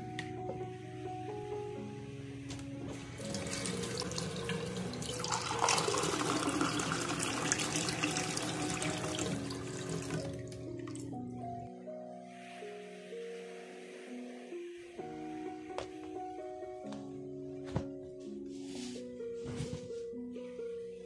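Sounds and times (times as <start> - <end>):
soft background music: 0.0 - 21.0
mug rinsed under water: 3.2 - 10.4
tap water running into sink: 3.2 - 11.1.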